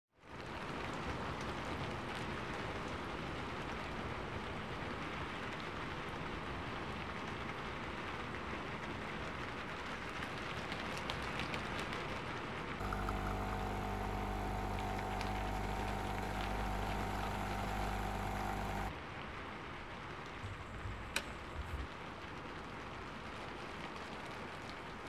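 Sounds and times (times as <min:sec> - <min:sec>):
steady rain falling: 0:00.3 - 0:25.0
drops ticking: 0:12.8 - 0:18.9.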